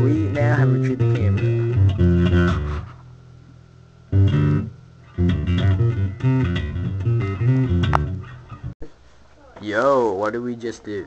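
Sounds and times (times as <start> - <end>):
electric bass guitar: 0.0 - 3.2, 4.1 - 8.7.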